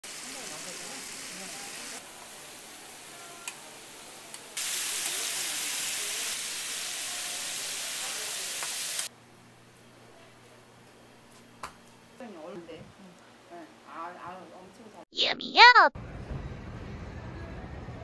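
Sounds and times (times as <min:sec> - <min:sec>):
patties sizzling in oil: 0:00.0 - 0:09.1.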